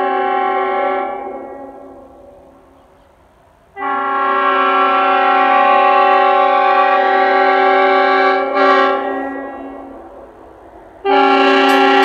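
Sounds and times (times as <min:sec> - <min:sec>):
three-chime air horn chord: 0:11.2 - 0:12.0.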